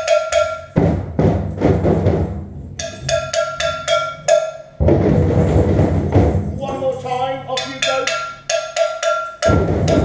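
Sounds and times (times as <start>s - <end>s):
high-pitched percussion strikes: 0.0s - 1.1s, 2.7s - 4.9s, 6.6s - 10.0s
group hand drumming: 0.0s - 7.0s, 7.6s - 10.0s.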